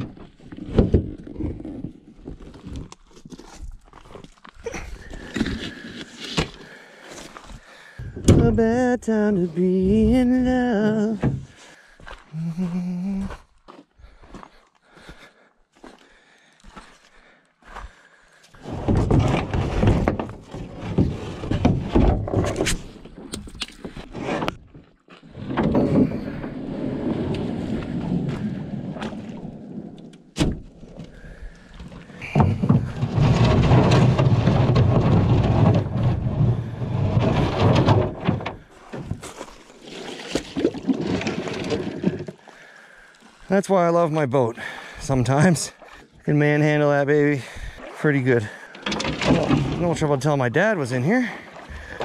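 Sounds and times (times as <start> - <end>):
metal hull scraping on gravel: 18.6 - 23.1, 23.9 - 30.1, 31.3 - 42.5, 43.5 - 52.0.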